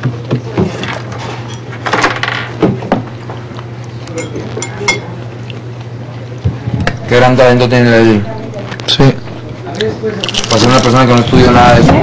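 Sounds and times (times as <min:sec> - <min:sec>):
steady low hum: 0:00.0 - 0:12.0
dishes and cutlery clinking: 0:00.6 - 0:02.5, 0:04.1 - 0:05.1.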